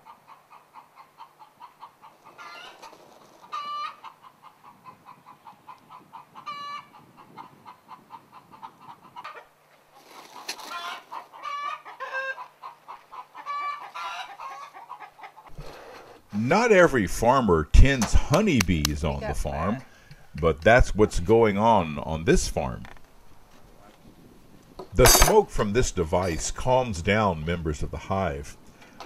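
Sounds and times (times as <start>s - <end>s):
poultry clucking softly: 0.0s - 15.9s
loud poultry calls: 0.0s - 16.0s.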